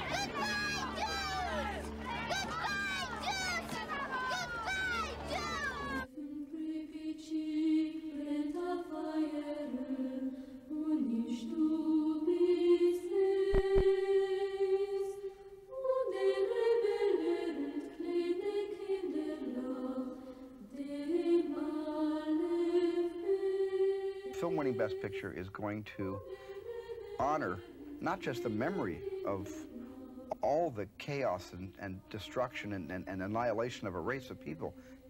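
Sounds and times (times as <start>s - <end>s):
person chanting a slow melody: 18.8s - 35.0s.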